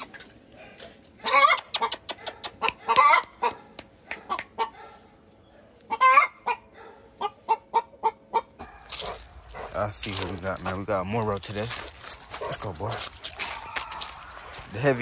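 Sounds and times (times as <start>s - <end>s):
loud fowl calls: 1.2s - 1.9s, 5.9s - 10.7s, 13.3s - 15.0s
fowl clucking: 1.2s - 4.8s, 5.9s - 10.2s.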